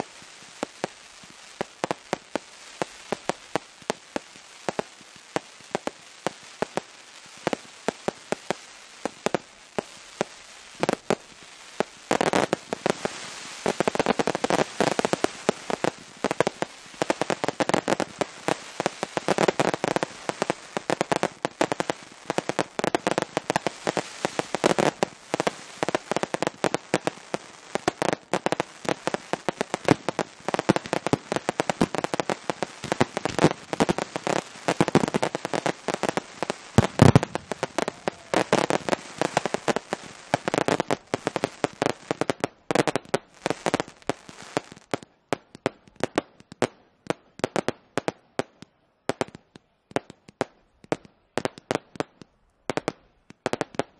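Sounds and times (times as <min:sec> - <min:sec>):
fireworks crackling: 0:00.0 - 0:53.9
fireworks bangs: 0:11.8 - 0:49.4.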